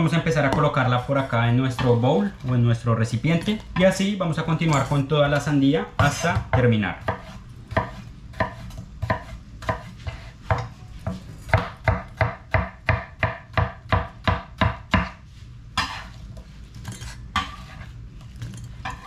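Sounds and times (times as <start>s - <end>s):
knife chopping on cutting board: 6.0s - 15.2s, 15.8s - 16.1s
knife scraping: 7.0s - 11.6s, 15.8s - 19.0s.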